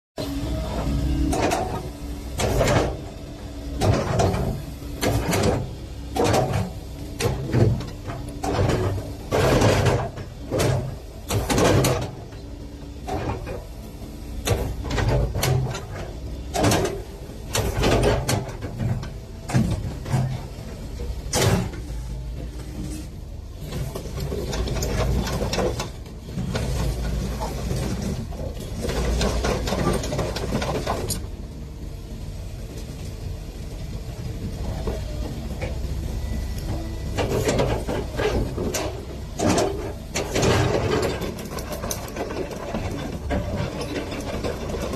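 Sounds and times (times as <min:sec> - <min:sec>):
excavator diesel engine running: 0:00.2 - 0:44.9
knocks and clatter: 0:23.9 - 0:31.3, 0:37.2 - 0:44.9.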